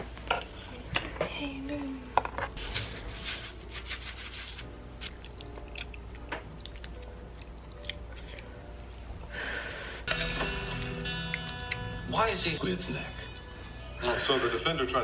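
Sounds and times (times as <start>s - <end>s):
faint music: 0.0s - 15.0s
chewing: 5.1s - 9.4s, 10.1s - 12.0s.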